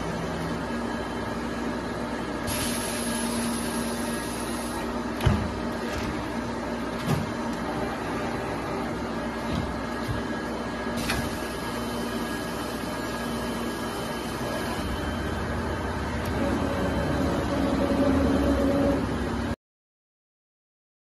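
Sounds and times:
sewing machine whirring: 11.0s - 19.4s.

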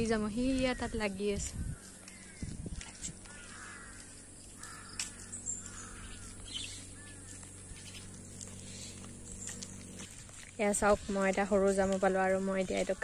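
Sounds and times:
bird calls: 0.5s - 10.1s.

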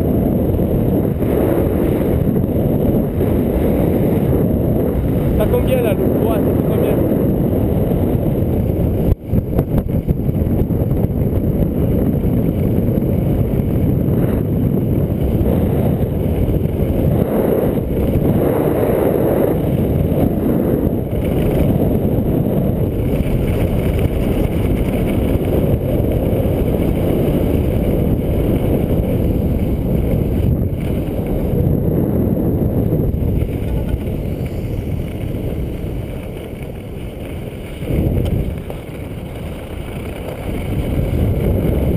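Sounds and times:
wind rushing over microphone: 0.0s - 41.9s
skis sliding over snow: 11.9s - 41.9s.

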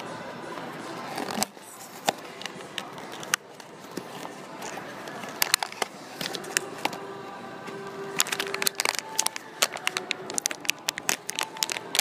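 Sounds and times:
cardboard packaging crinkling: 8.1s - 12.0s.

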